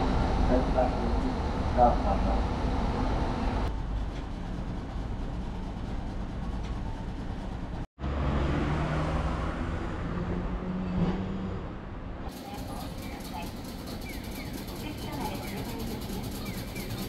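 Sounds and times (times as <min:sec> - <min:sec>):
low traffic rumble: 0:00.0 - 0:17.0
streetcar humming: 0:00.0 - 0:17.0.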